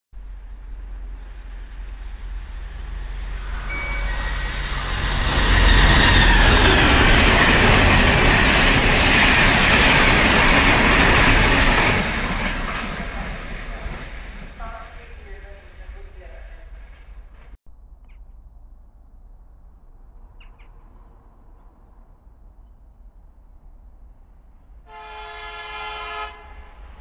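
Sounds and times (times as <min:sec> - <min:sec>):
train passing at speed: 0:00.2 - 0:17.6.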